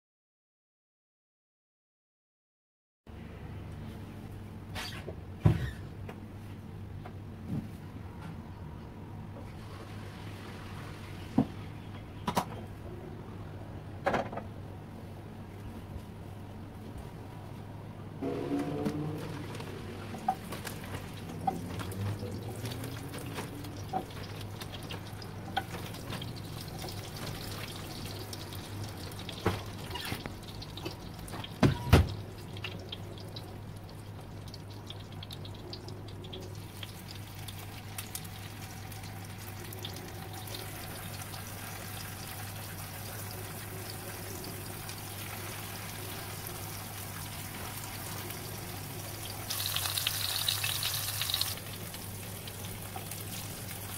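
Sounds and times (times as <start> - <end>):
tofu sizzling in oil: 36.5 - 53.9.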